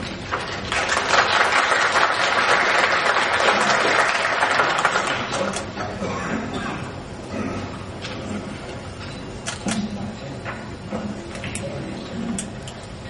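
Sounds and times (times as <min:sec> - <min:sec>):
audience applauding: 0:00.2 - 0:05.6.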